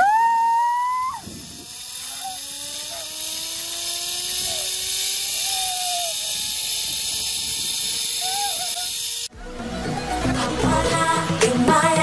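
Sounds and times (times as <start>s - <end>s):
hiss: 4.1s - 9.3s
person screaming: 5.3s - 6.4s, 8.2s - 8.9s.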